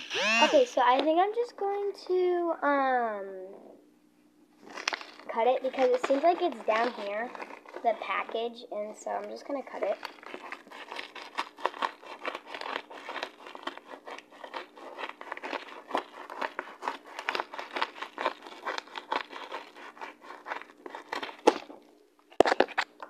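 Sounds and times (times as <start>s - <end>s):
paper rustling and crackling: 4.6s - 8.4s, 9.2s - 23.0s
scissors snipping paper: 4.8s - 8.0s, 9.2s - 21.7s.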